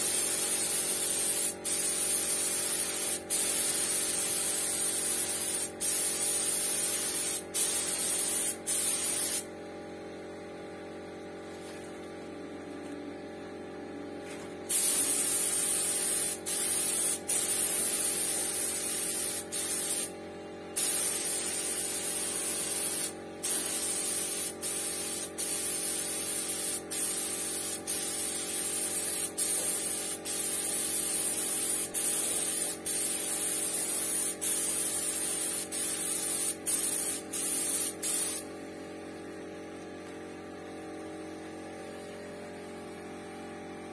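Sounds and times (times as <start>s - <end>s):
paint spray gun hissing: 0.0s - 9.5s, 14.7s - 20.1s, 20.8s - 38.5s.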